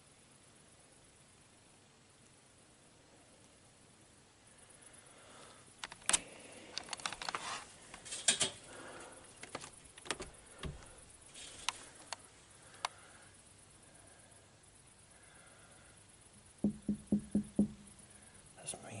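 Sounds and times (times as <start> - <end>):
clicks and clinks of handling things: 5.8 - 8.6.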